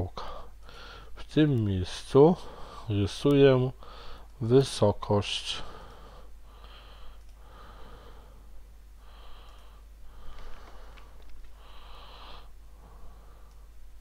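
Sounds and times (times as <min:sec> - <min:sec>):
person breathing: 0:00.2 - 0:01.2, 0:02.4 - 0:02.9, 0:03.8 - 0:04.3, 0:05.6 - 0:13.8
faint clicks: 0:07.1 - 0:07.4, 0:09.4 - 0:11.6, 0:13.4 - 0:13.8.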